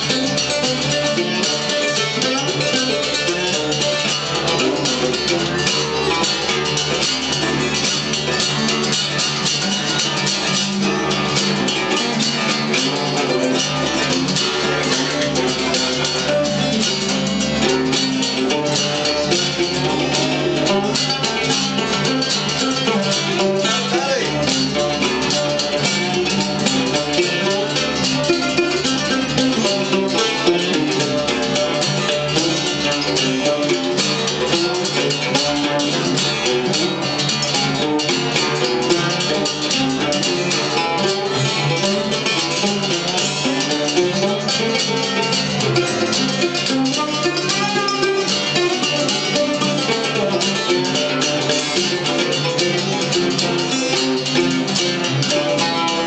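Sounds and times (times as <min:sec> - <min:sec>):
guitars and banjos playing: 0:00.0 - 0:56.0.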